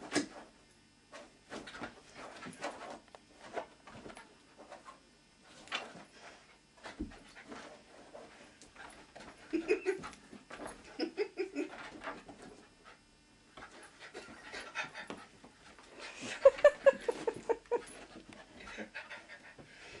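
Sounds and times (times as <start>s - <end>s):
dog panting: 17.1s - 19.7s.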